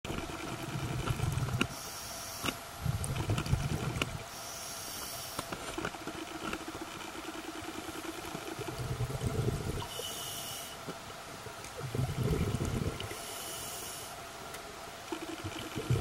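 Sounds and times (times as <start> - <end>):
underwater noise: 0.1 - 16.0
scuba regulator air hiss: 1.7 - 2.6, 4.3 - 5.5, 9.9 - 10.8, 13.2 - 14.2
exhaled bubbles rumbling: 2.8 - 4.3, 8.6 - 9.9, 11.7 - 13.2, 15.5 - 16.0.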